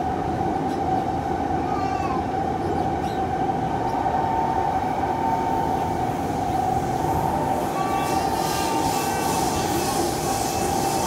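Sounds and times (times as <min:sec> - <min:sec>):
train rumbling in tunnel: 0:00.0 - 0:11.0.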